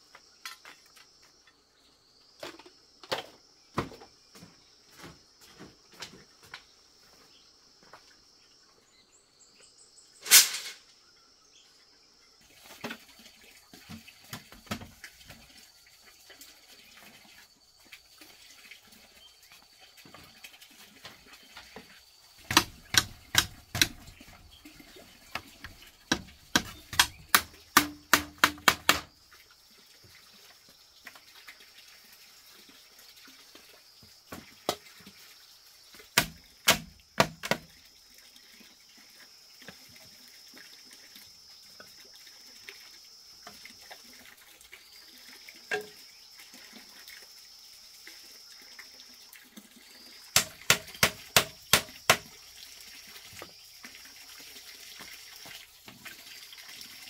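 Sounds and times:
sharp knocks: 22.4s - 24.1s, 26.1s - 29.1s, 36.2s - 37.7s, 50.4s - 52.3s.

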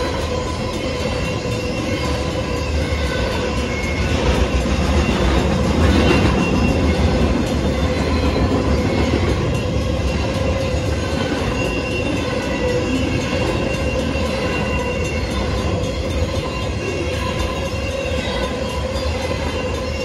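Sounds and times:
train wheels rumbling on rail: 0.0s - 20.0s.

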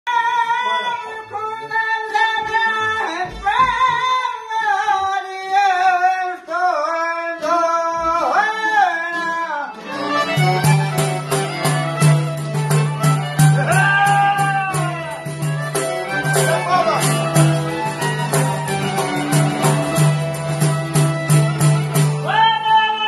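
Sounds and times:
accordion: 9.1s - 22.6s
violin: 9.1s - 23.0s
long-necked lutes: 9.8s - 23.0s.

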